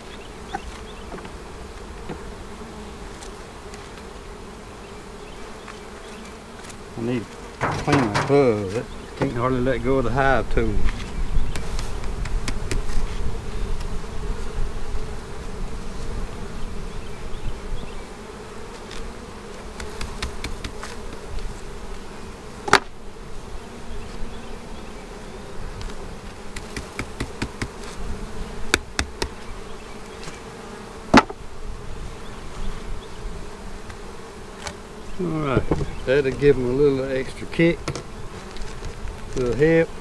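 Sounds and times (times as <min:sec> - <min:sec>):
honeybees buzzing: 0:00.0 - 0:40.0
wooden hive frames knocking: 0:00.5 - 0:01.4, 0:02.0 - 0:02.4, 0:07.2 - 0:09.6, 0:10.9 - 0:12.9, 0:19.7 - 0:21.3, 0:22.6 - 0:23.0, 0:25.9 - 0:27.9, 0:28.6 - 0:29.6, 0:31.1 - 0:31.4, 0:35.4 - 0:36.6, 0:37.5 - 0:39.7.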